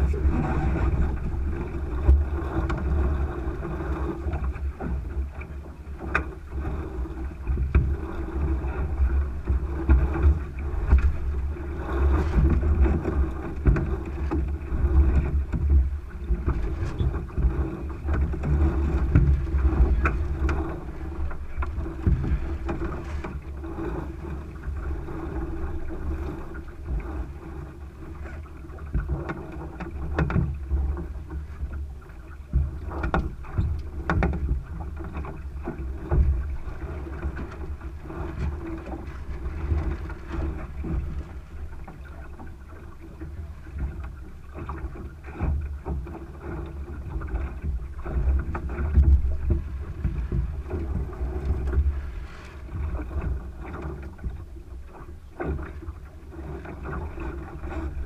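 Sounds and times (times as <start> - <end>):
wind buffeting microphone: 0.0 - 29.2, 29.8 - 58.0
water rushing along hull: 0.0 - 58.0.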